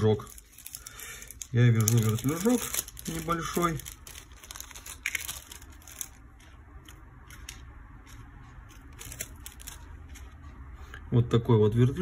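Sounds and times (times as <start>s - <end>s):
plastic bag crinkling: 0.0s - 6.6s, 8.9s - 10.3s.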